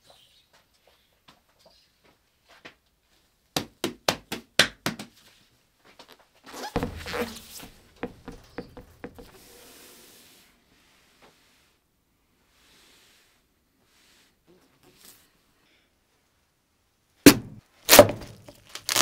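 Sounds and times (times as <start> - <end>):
cleaver scraping on board: 6.6 - 9.5.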